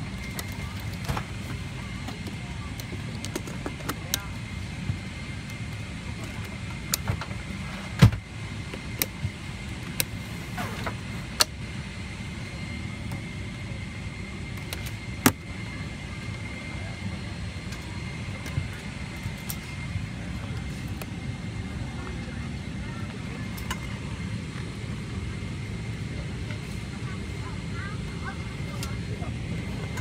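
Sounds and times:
cabin air system hum: 0.0 - 30.0.

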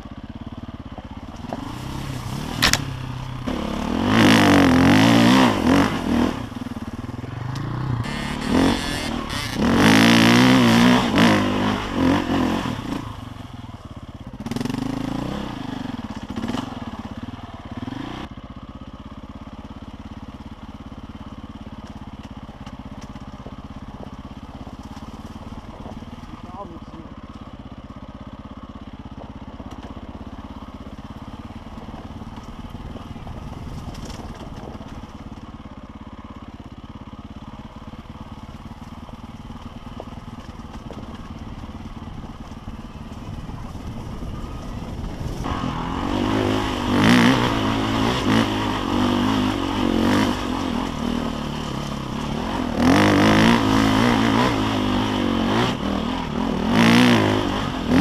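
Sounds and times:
dirt bike engine revving: 1.2 - 18.3, 37.4 - 58.0.

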